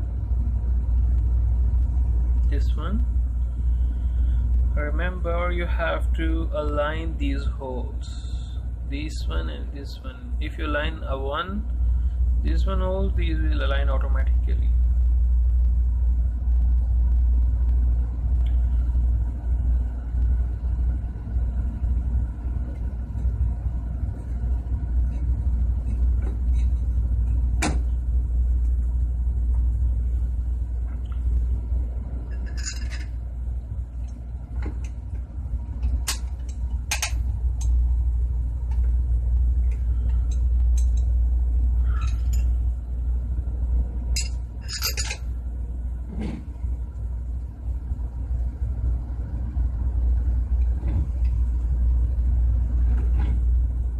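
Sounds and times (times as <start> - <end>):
steady low rumble: 0.0 - 53.9
steel plates clinking: 32.3 - 33.1, 44.2 - 45.2.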